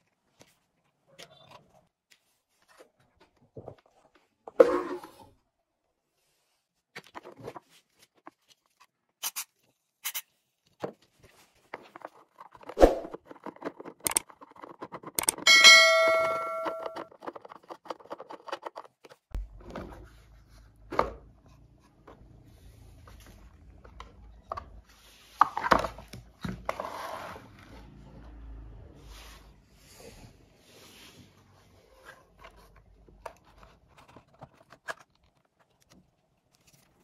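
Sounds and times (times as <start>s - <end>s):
screwdriver clicking on plastic: 13.4s - 15.4s
brief metallic ring: 15.5s - 17.0s.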